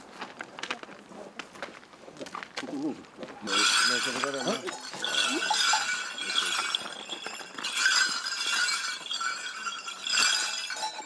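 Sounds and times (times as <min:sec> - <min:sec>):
small bells jingling: 0:03.4 - 0:11.0.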